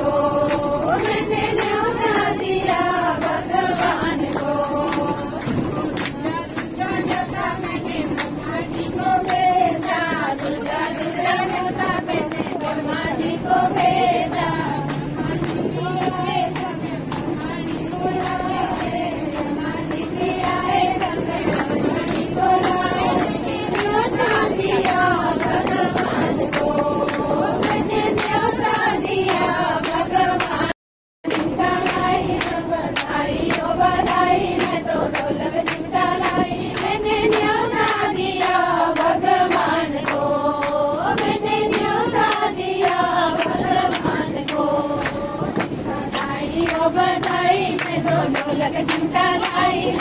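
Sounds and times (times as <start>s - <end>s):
bus running noise: 0.0s - 50.0s
group singing devotional song: 0.0s - 50.0s
hand claps: 0.0s - 50.0s.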